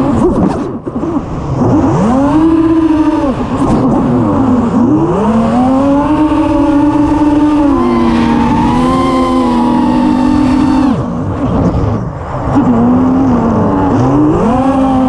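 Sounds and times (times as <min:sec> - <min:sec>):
quadcopter motors whining: 0:01.7 - 0:12.0.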